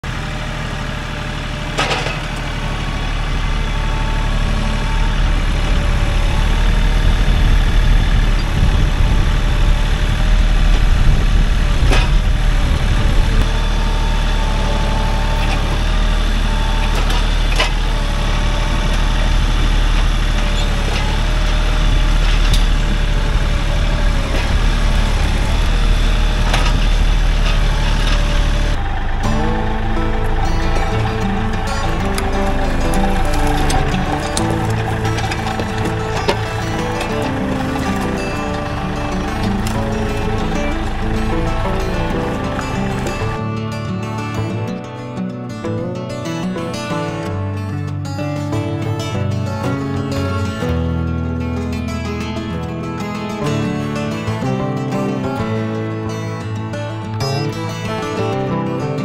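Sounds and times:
tractor engine running: 0:00.0 - 0:59.0
sharp knocks and clanks: 0:01.7 - 0:02.5.

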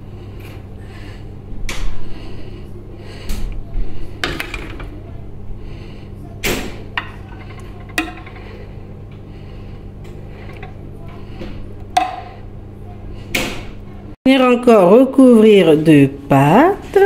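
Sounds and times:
low hum: 0:00.0 - 0:15.0
utensils scraping and knocking dish: 0:06.5 - 0:08.7, 0:10.1 - 0:12.4.

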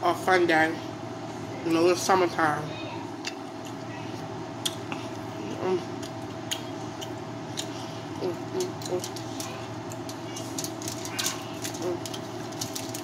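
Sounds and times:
low room hum: 0:00.0 - 0:13.0
person chewing: 0:04.6 - 0:13.0
person humming: 0:05.5 - 0:05.9, 0:08.2 - 0:09.1.

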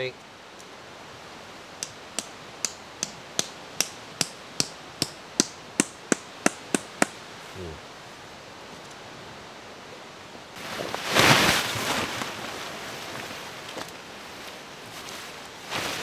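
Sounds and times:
tent stake being hammered: 0:01.8 - 0:07.2.

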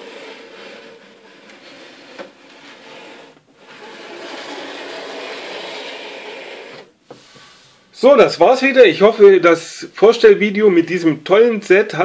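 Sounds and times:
plastic toy rubbing on tabletop: 0:00.0 - 0:07.4.

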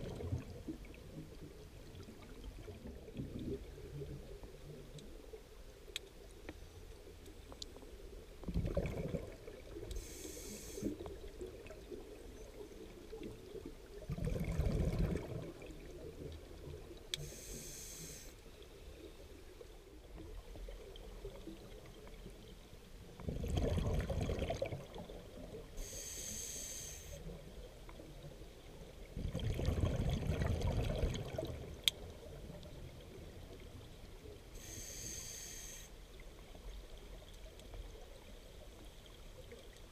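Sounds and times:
bubbles from diver exhaling: 0:00.0 - 0:00.5, 0:08.5 - 0:09.7, 0:14.1 - 0:15.8, 0:23.2 - 0:25.2, 0:29.2 - 0:31.7
regulator inhalation hiss: 0:10.0 - 0:11.0, 0:17.2 - 0:18.4, 0:25.8 - 0:27.3, 0:34.6 - 0:36.0.

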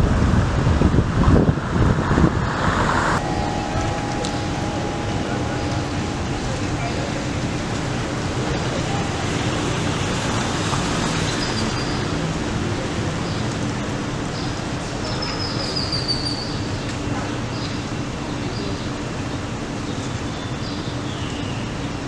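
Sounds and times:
traffic hum: 0:00.0 - 0:22.0
high chirps: 0:03.2 - 0:10.2.

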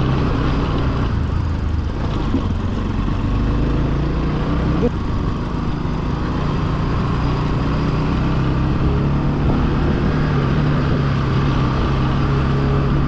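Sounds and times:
motorcycle engine running: 0:00.0 - 0:13.0
wind rumble on microphone: 0:08.4 - 0:13.0.

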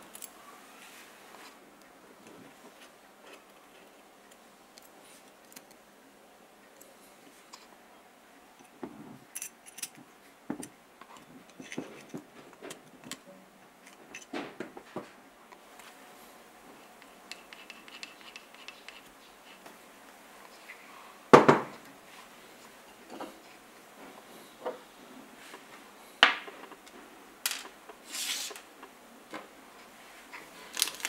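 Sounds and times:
metal parts clicking and scraping: 0:00.0 - 0:00.4, 0:09.3 - 0:10.0, 0:30.6 - 0:31.0.

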